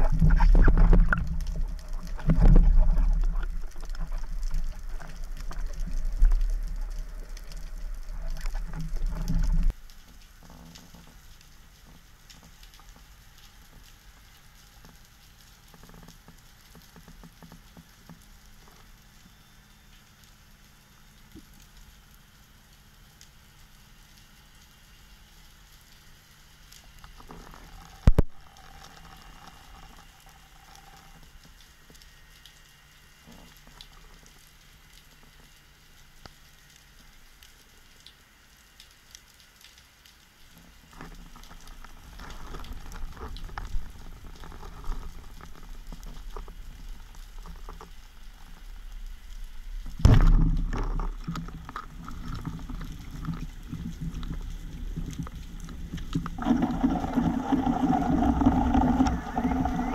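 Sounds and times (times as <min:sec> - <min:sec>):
water rushing past camera: 0:00.0 - 0:09.7, 0:56.2 - 0:59.9
faint underwater crackle: 0:00.0 - 0:59.9.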